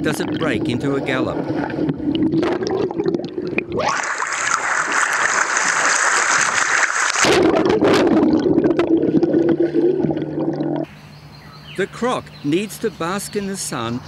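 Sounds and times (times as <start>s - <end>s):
splashing water rush: 3.8s - 8.3s
muffled underwater rumble: 7.2s - 10.9s.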